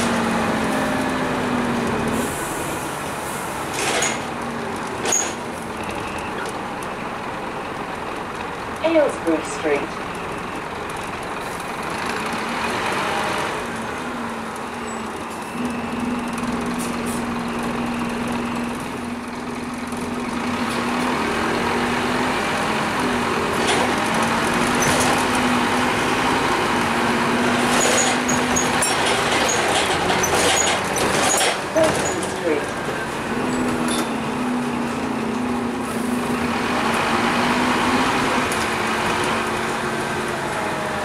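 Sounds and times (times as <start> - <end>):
bus diesel engine drone: 0.0 - 41.0
road noise: 0.0 - 41.0.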